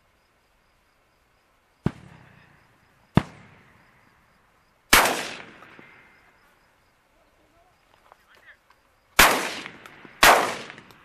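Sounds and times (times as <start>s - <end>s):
shotgun shots echoing: 3.1s - 3.7s, 4.9s - 6.0s, 9.2s - 11.0s.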